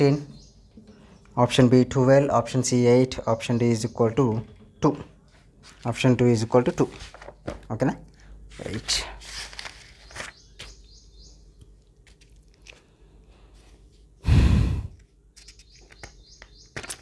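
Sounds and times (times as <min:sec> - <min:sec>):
breath into microphone: 0:13.4 - 0:15.0.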